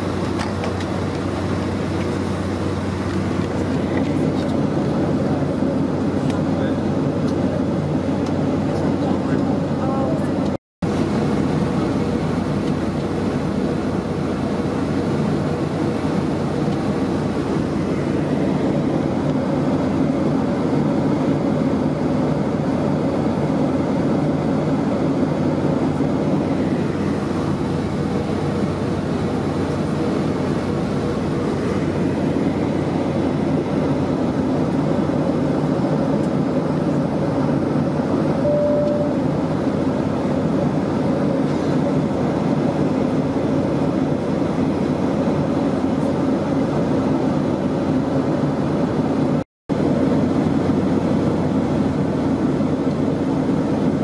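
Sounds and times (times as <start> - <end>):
airflow over fuselage: 0.0 - 54.0
jet engine drone: 0.0 - 54.0
short single tone: 38.4 - 39.3.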